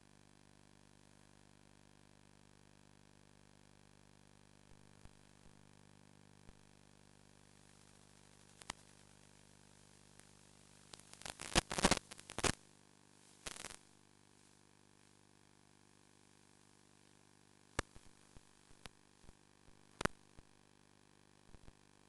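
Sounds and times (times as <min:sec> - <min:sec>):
faint electrical hum: 0:00.0 - 0:22.0
loud crackling bursts: 0:10.9 - 0:12.6, 0:13.4 - 0:13.9.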